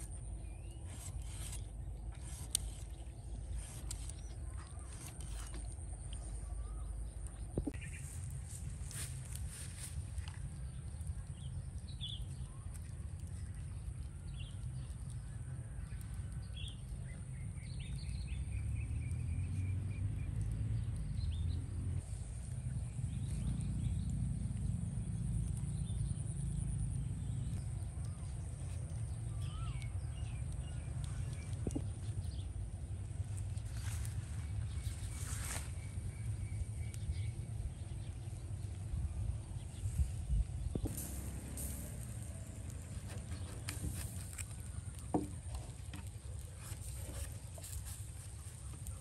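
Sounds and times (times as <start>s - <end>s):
low rumble: 0.0s - 49.0s
bird chirps: 27.2s - 32.5s
high-pitched hiss: 40.8s - 45.3s.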